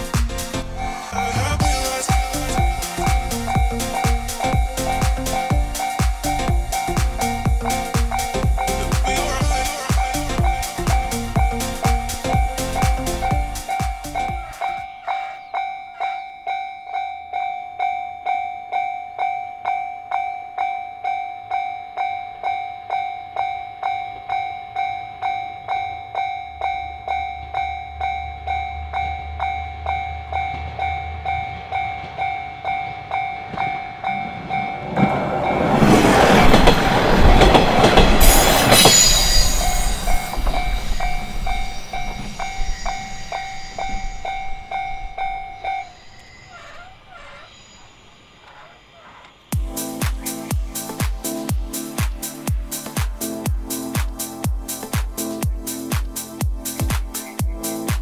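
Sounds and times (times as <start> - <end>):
level-crossing warning bell: 0.8 - 52.6
train wheels clattering over rail joints: 29.9 - 47.4.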